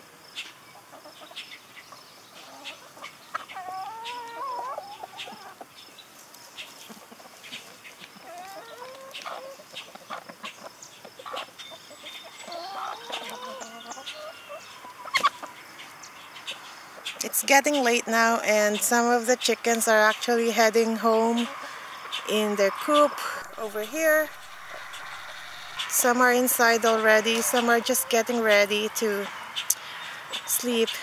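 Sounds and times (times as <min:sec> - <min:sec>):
hens clucking: 0:00.7 - 0:17.2, 0:18.5 - 0:31.0
hens scratching in soil: 0:02.3 - 0:15.9, 0:21.0 - 0:29.4.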